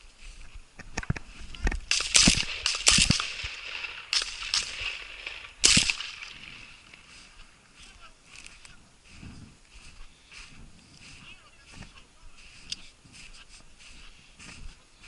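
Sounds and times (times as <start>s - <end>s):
sharp clicks: 0.8s - 6.4s
shotgun shots: 1.8s - 6.8s.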